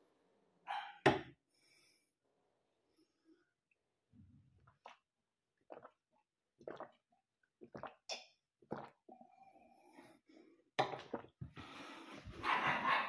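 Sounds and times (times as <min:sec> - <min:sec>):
person gulping water: 0:04.6 - 0:09.4, 0:10.8 - 0:11.6.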